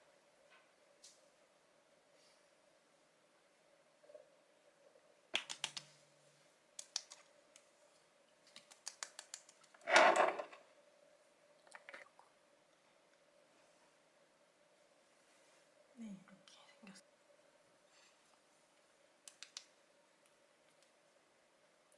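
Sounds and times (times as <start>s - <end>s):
faint steady hum: 0.0s - 21.9s
fingers patting face: 5.4s - 5.9s, 8.5s - 9.7s.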